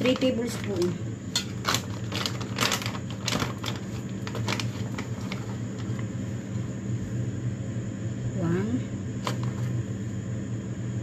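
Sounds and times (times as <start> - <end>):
plastic packet crinkling: 0.0 - 6.1
steady low hum: 0.0 - 11.0.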